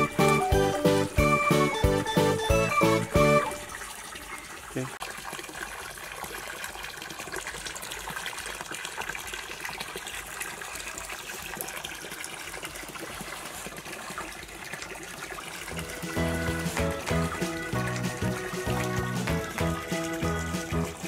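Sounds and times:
muddy water splashing: 0.0 - 21.0.

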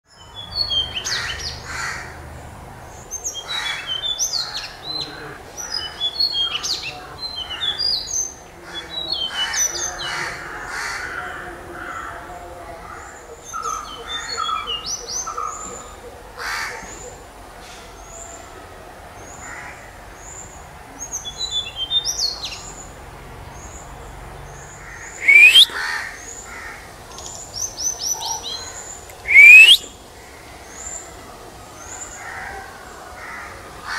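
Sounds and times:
bird singing high notes: 25.2 - 25.7, 29.2 - 29.9
short high bird chips: 25.2 - 25.7, 29.2 - 29.8
upward-sweeping whistles: 25.2 - 25.8, 29.2 - 29.9.

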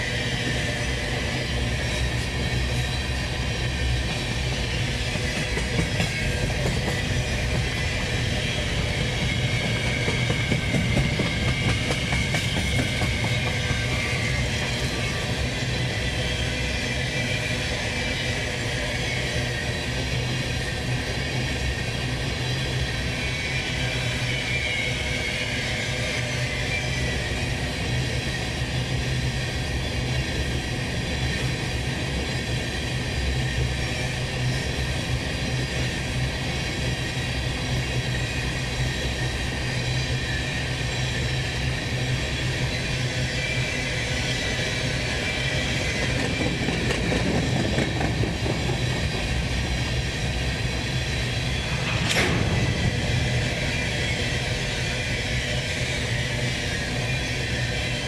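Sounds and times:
freight train rolling past: 0.0 - 58.0.

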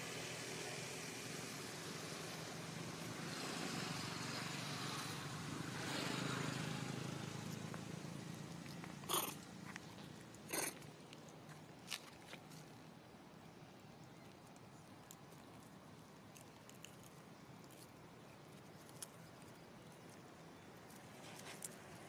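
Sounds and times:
distant engine droning: 0.0 - 11.1.

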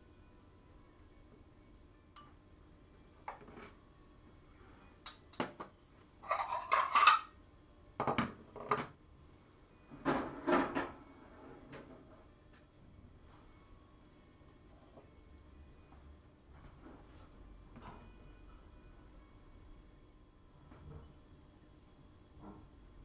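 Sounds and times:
ceramic dishes clattering on steel: 6.2 - 7.4.

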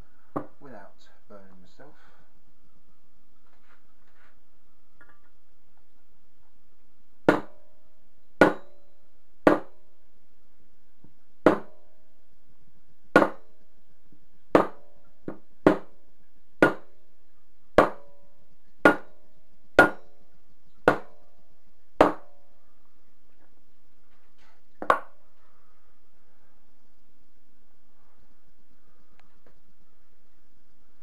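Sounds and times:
hammer striking metal punch: 8.4 - 8.7, 9.5 - 9.7, 18.9 - 19.1, 19.8 - 20.0.

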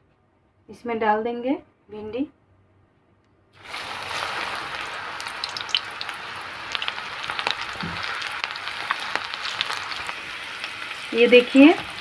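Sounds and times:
okra deep-frying in oil: 3.6 - 12.0.

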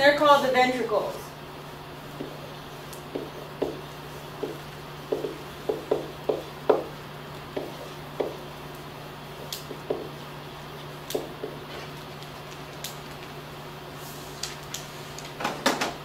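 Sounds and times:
steady low hum: 0.0 - 16.0
marker writing on a whiteboard: 2.1 - 8.6, 9.3 - 10.3.

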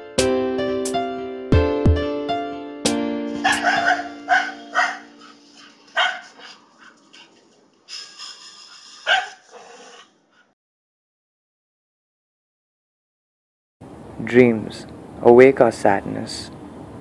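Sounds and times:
held piano chord: 0.0 - 5.9
dog barking: 3.4 - 7.0, 9.0 - 10.1.

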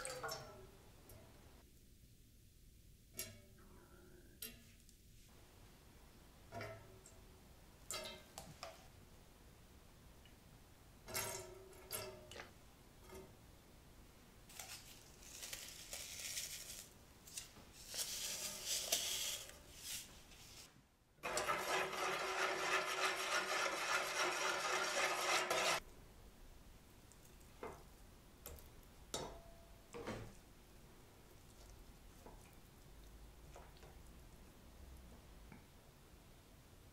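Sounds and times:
seasoning granules rattling: 14.5 - 17.0, 17.7 - 20.0.

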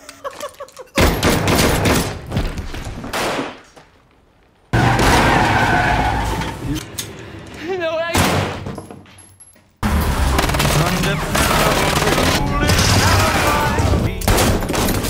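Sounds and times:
rapid gunshots: 10.2 - 14.8.

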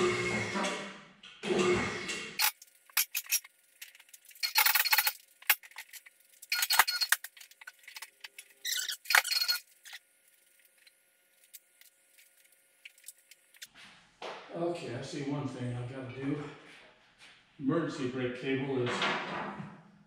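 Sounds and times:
car lift motor running: 0.0 - 0.8
squeaks and clinks: 4.3 - 5.2, 6.4 - 7.3, 8.6 - 10.0.

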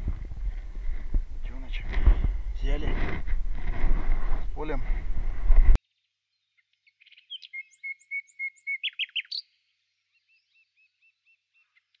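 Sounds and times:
songbird singing: 5.8 - 12.0.

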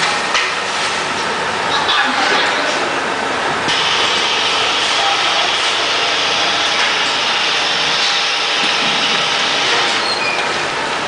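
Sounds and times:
packing machinery din: 3.7 - 10.8.

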